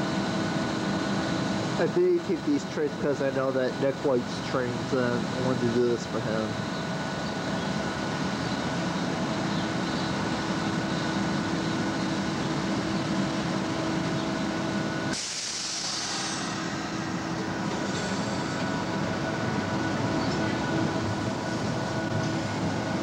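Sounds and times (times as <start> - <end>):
electric train humming: 0.0 - 23.0
air hiss: 15.1 - 16.7.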